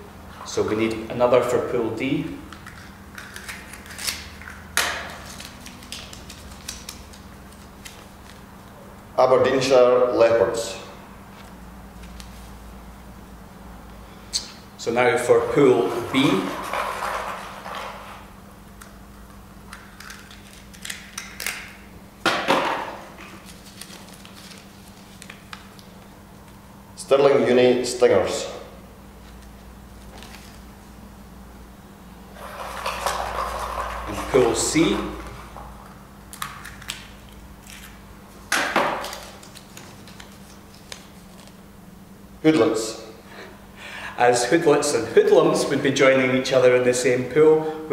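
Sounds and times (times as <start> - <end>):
paper crinkling: 23.4 - 26.0, 39.0 - 41.6.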